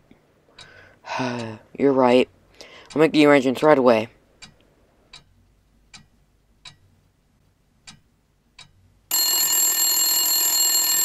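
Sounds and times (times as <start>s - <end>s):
telephone bell ringing: 9.1s - 11.0s.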